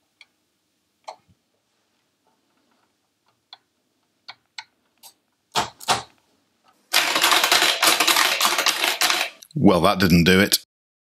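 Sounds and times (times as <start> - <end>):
rapid keyboard typing: 6.9 - 9.4.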